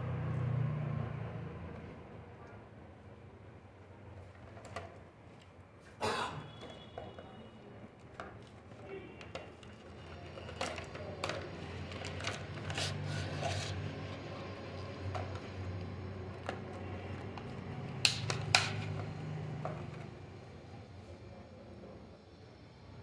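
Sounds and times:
cardboard and plastic packaging handled: 6.5s - 20.1s.

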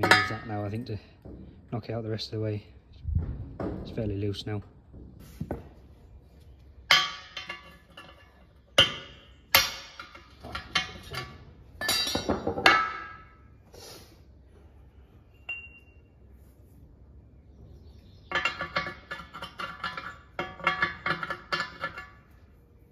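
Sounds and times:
steel pins clinking and clattering: 0.0s - 1.4s, 6.8s - 13.5s, 18.2s - 22.6s.

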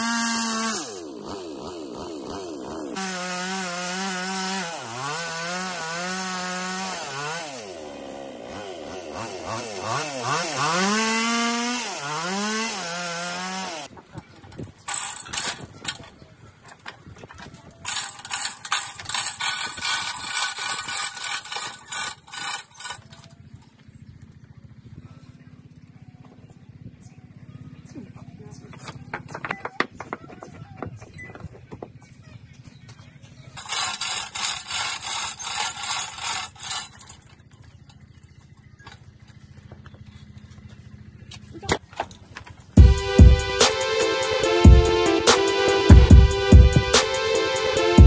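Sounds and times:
hoist chain rattling: 14.9s - 16.1s, 17.5s - 23.4s, 33.6s - 38.1s.

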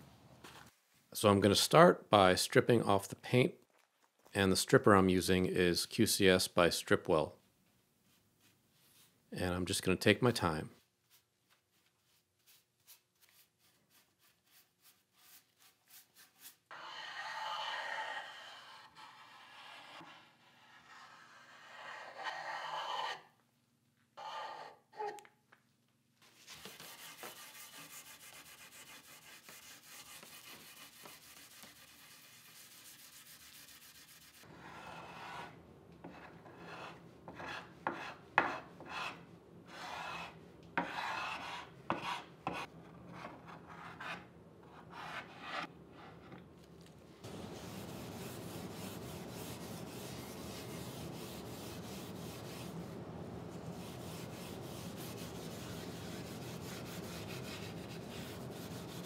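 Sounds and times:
brush scrubbing wood: 26.5s - 35.5s, 47.2s - 59.0s.

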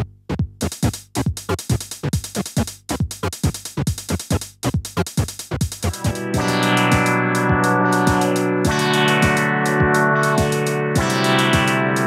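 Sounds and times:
plucked electronic synth notes: 5.8s - 12.0s.

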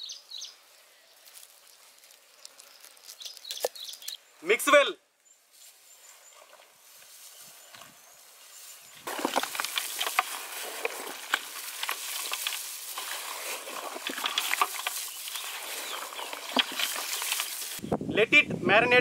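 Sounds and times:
hands mixing wet meat: 9.1s - 17.8s.

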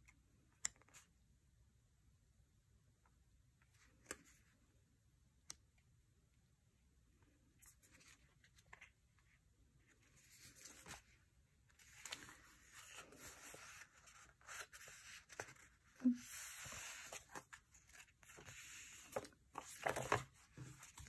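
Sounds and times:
paper rustling: 10.1s - 21.0s.

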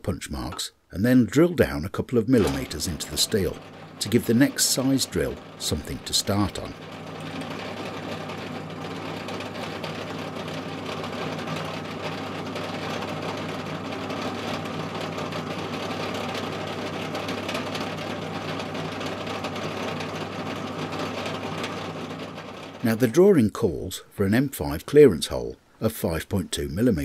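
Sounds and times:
drill press motor humming: 2.4s - 23.1s
drill boring into steel: 2.4s - 23.2s.

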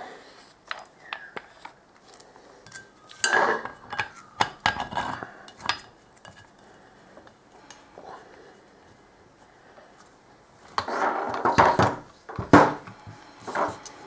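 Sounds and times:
plastic parts clicking and knocking: 10.8s - 13.0s.

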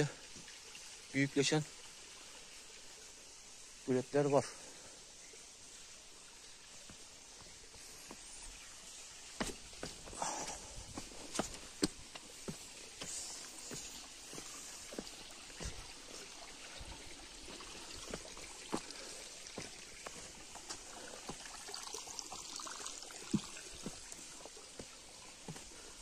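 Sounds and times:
creek trickling over rocks: 0.0s - 26.0s
footsteps on rocky trail: 6.8s - 21.4s, 23.3s - 26.0s.

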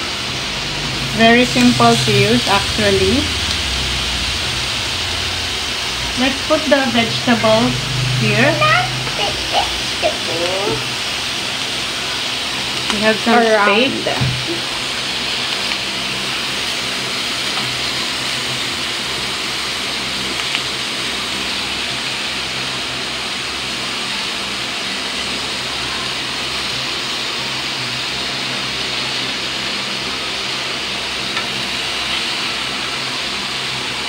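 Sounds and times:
low steady hum: 0.0s - 11.2s
meat sizzling on grill: 0.0s - 34.0s.

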